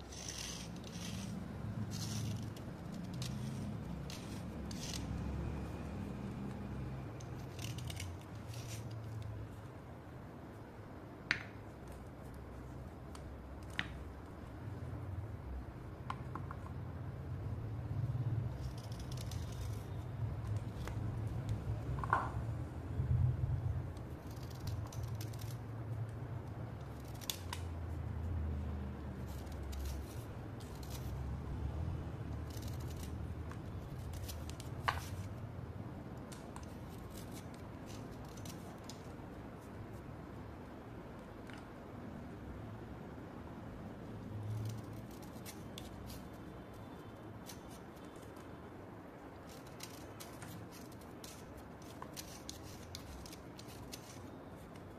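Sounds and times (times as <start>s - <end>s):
blade scraping slate: 0.0s - 5.2s, 7.2s - 9.2s, 18.5s - 20.2s, 29.2s - 31.2s, 32.3s - 35.4s, 49.4s - 54.4s.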